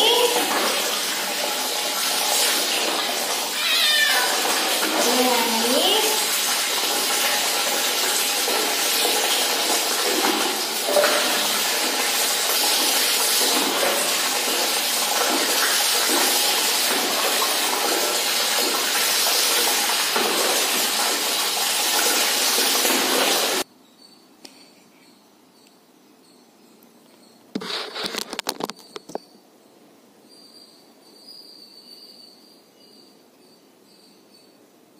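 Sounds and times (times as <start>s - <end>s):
water pouring and splashing: 0.0s - 23.7s.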